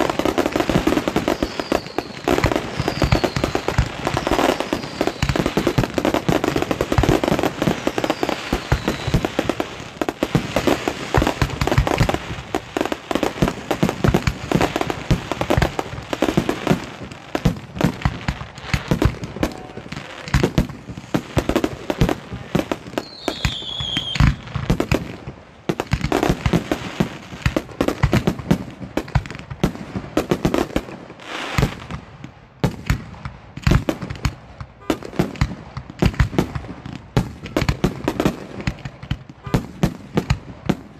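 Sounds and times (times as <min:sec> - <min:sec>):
fireworks bangs and crackle: 0:00.0 - 0:40.9
firework whistle falling in pitch: 0:01.2 - 0:03.6, 0:07.8 - 0:09.2, 0:23.0 - 0:24.5.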